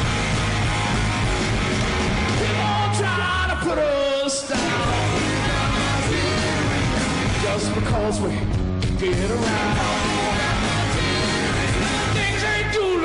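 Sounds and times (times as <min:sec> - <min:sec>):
rock band playing: 0:00.0 - 0:13.0
singer yelling: 0:02.4 - 0:06.6.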